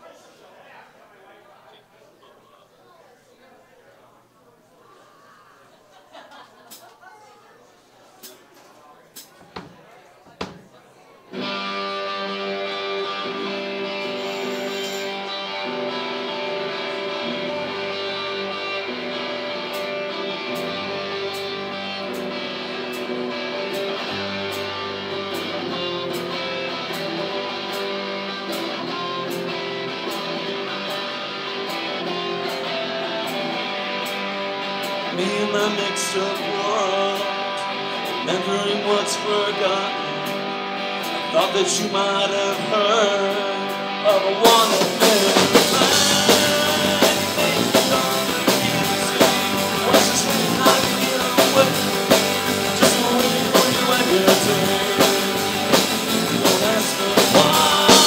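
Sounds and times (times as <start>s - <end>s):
guitar line with bending notes: 11.3s - 58.0s
strummed guitars: 11.3s - 58.0s
bass guitar: 11.4s - 58.0s
drum kit crashing: 44.5s - 58.0s.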